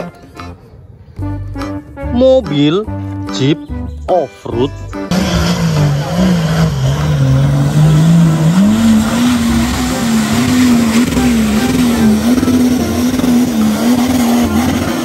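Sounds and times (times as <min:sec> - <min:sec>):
engine labouring uphill: 0:04.8 - 0:15.0.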